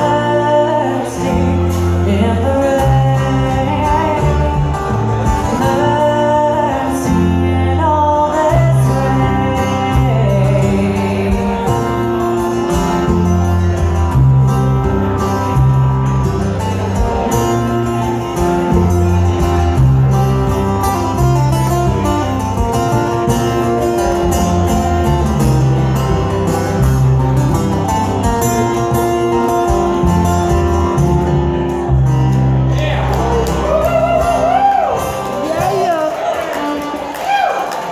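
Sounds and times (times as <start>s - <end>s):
person singing: 0.0s - 12.4s
plucked upright bass: 0.0s - 34.5s
strummed acoustic guitar: 0.0s - 37.1s.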